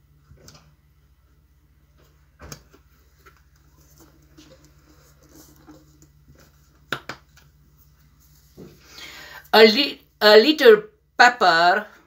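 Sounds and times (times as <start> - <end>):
faint low hum: 0.0 - 12.0
small taps and rustles: 1.9 - 8.9.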